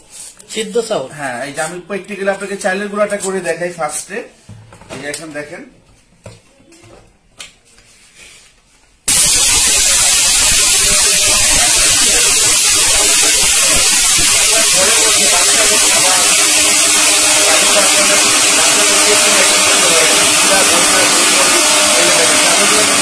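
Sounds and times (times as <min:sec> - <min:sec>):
mixer grinder motor whirring: 0:09.1 - 0:23.0.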